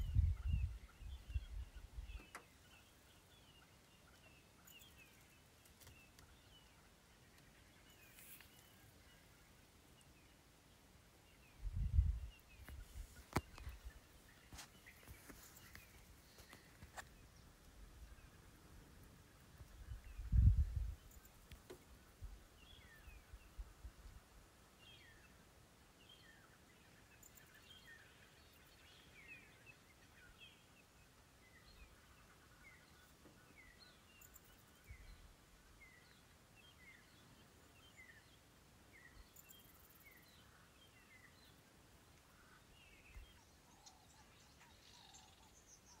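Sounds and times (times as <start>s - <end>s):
bird chirps: 0.0s - 10.4s, 26.0s - 41.7s, 42.3s - 46.0s
quiet bush ambience: 0.0s - 46.0s.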